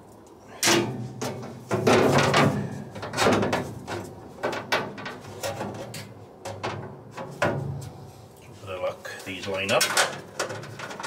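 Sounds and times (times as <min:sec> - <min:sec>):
metal plate clattering and scraping: 0:00.6 - 0:07.9, 0:09.7 - 0:11.0.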